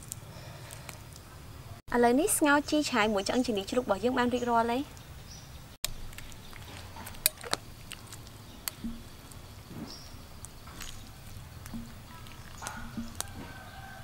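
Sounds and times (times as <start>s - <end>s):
wet squishes of broth: 0.0s - 1.4s, 5.8s - 14.0s.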